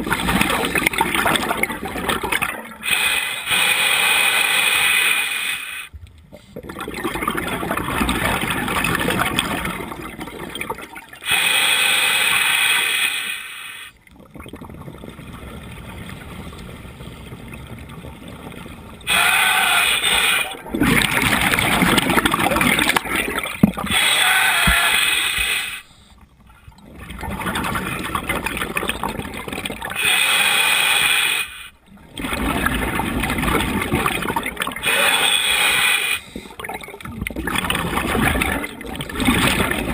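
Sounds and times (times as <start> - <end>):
bubbling exhalations underwater: 6.4 - 11.3, 19.0 - 25.7, 32.0 - 39.9
regulator hissing inhalations: 23.9 - 26.1, 30.0 - 31.8, 34.9 - 36.5.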